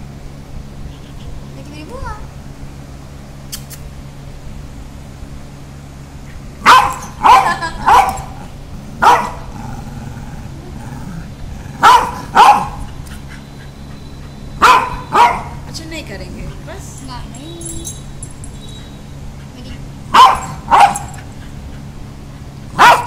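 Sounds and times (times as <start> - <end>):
dog barking: 6.6 - 8.4, 9.0 - 9.5, 11.8 - 12.9, 14.6 - 15.6, 20.1 - 21.2, 22.8 - 23.0.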